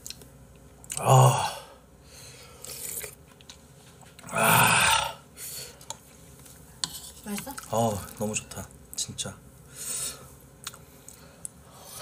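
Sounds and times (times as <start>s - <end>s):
man chewing food: 0.0s - 1.1s, 2.4s - 4.3s, 10.6s - 11.6s
rough throat sound: 0.9s - 1.8s, 4.2s - 5.2s.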